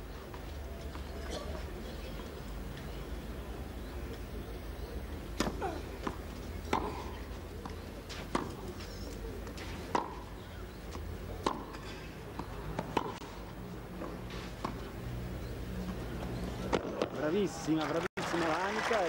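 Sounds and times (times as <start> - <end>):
tennis balls struck with rackets: 5.2 - 13.3, 14.0 - 15.0.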